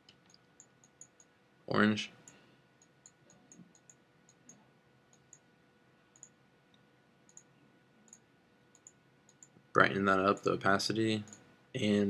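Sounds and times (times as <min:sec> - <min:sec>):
faint mouse clicks: 0:00.0 - 0:01.3, 0:02.1 - 0:05.5, 0:06.1 - 0:07.5, 0:08.1 - 0:09.6, 0:11.2 - 0:11.5
low steady hum: 0:00.0 - 0:12.0.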